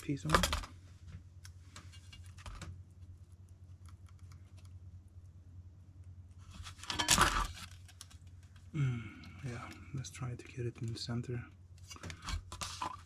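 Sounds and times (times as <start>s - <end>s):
low steady hum: 0.0s - 13.0s
sticker ticks and rustles: 1.4s - 4.8s.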